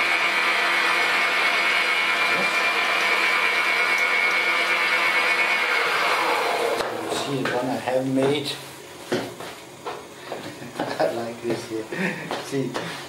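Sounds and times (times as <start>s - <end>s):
metal lathe whining: 0.0s - 7.6s.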